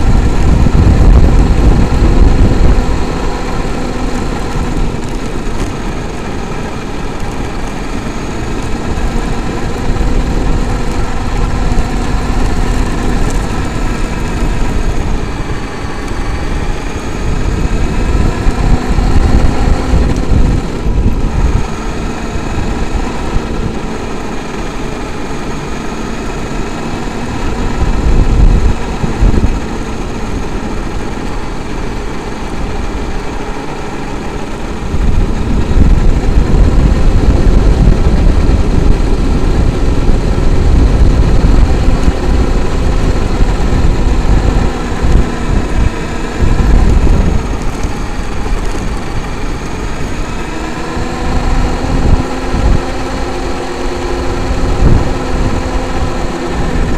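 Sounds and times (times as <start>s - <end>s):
rc truck motor whining: 0.0s - 56.9s
tyre and wind rumble: 0.0s - 56.9s.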